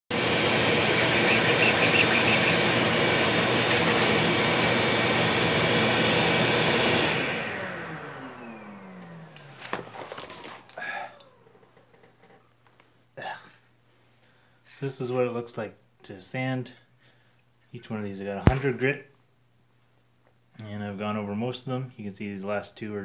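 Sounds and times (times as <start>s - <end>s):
electric machine running: 0.1s - 11.5s
knocks and handling sounds: 9.0s - 10.8s.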